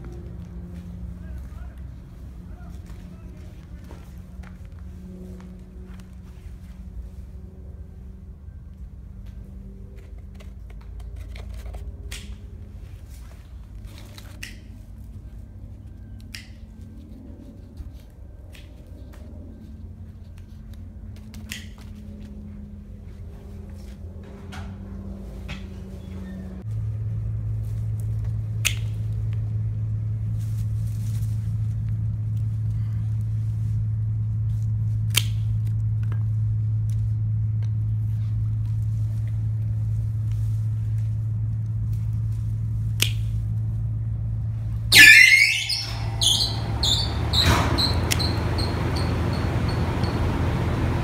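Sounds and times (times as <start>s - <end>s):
low hum: 0.0s - 51.0s
pruning shears snipping stems: 10.0s - 15.0s, 27.8s - 29.4s, 34.4s - 37.8s, 40.2s - 43.7s.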